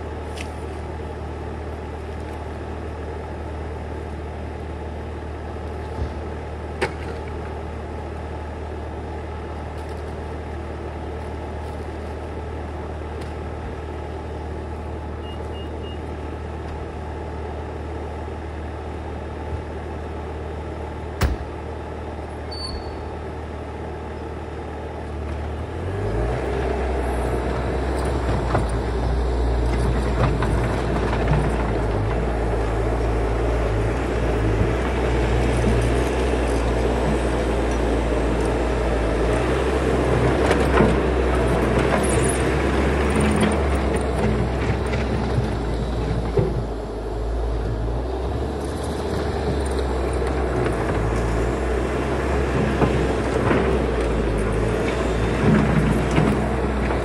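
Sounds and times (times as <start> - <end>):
sharp knocks: 21.2 - 21.5.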